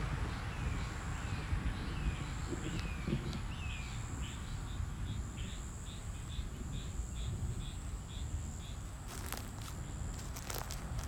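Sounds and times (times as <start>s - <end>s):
insects droning: 0.3s - 11.0s.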